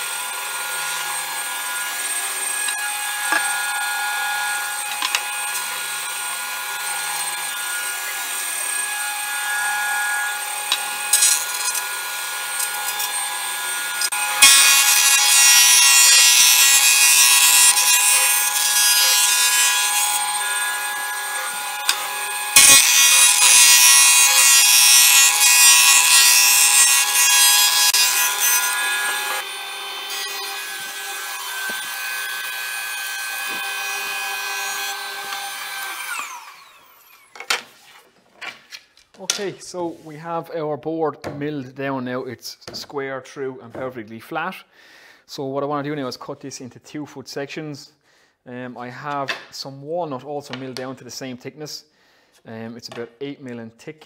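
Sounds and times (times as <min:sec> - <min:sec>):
planer cutting wood: 0:00.0 - 0:37.6
planer machine hum: 0:10.3 - 0:37.2.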